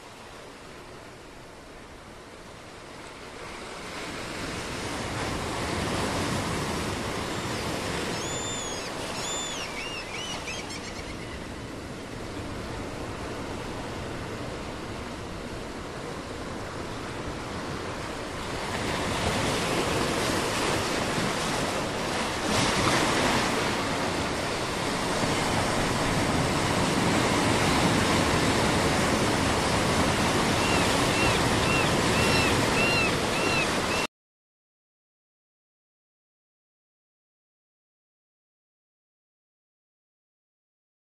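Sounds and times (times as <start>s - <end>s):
waves breaking on a shore: 0.0s - 34.1s
bird chirping: 8.1s - 11.4s.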